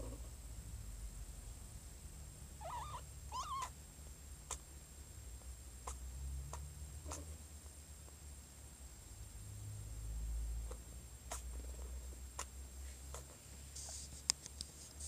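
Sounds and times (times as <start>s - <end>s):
cat meowing: 2.6s - 3.8s
cat purring: 2.6s - 3.8s, 9.5s - 14.0s.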